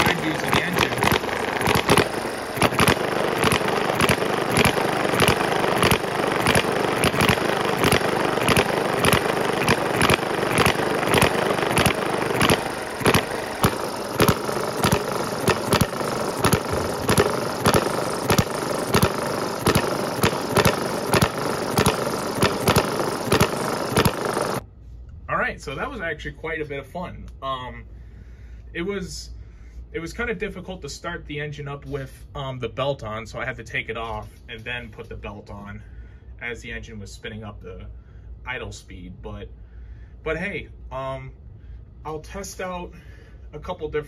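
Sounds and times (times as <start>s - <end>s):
mechanical clatter: 0.0s - 24.6s
small engine firing pops: 0.0s - 24.6s.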